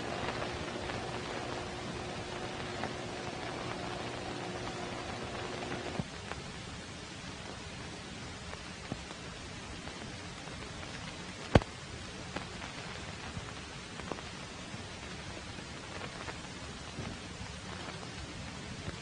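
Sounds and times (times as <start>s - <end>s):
scattered clicks: 0.0s - 6.1s
film soundtrack hiss and crackle: 0.0s - 19.0s
sharp pop: 11.5s - 11.7s.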